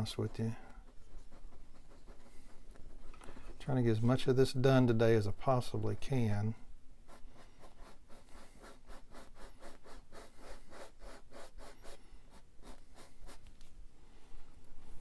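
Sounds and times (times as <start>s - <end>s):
paintbrush scratching on canvas: 0.0s - 4.6s, 7.0s - 13.6s.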